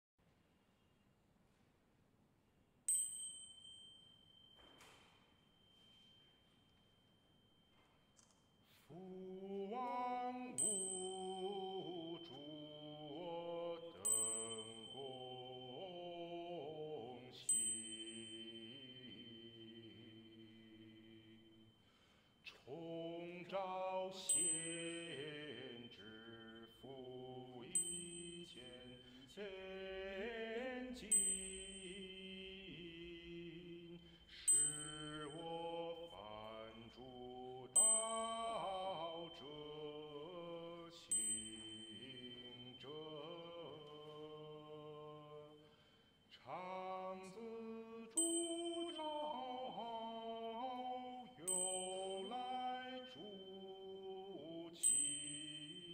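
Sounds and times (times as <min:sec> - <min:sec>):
sharp click with high ring: 0:02.9 - 0:06.2.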